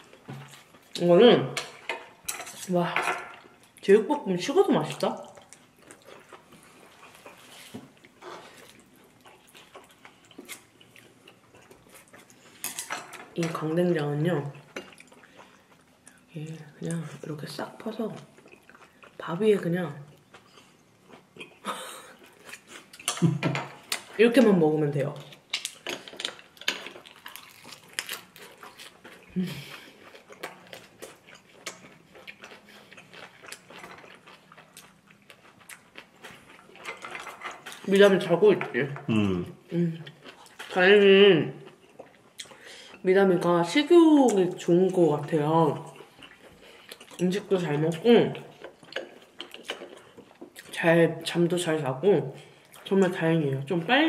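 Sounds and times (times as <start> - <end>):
quiet chewing: 4.8 - 13.3, 14.5 - 16.8, 18.1 - 19.3, 25.2 - 37.9, 39.0 - 40.9, 41.6 - 43.1, 45.7 - 50.8
chewing mouth sounds: 27.0 - 37.8.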